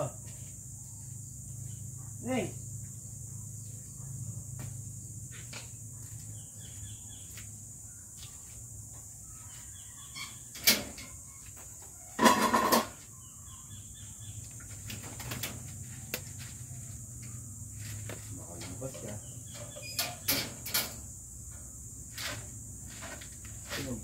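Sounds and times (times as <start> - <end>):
small birds chirping: 0.0 - 12.2, 13.0 - 22.0
wire cage rattling: 18.6 - 21.1.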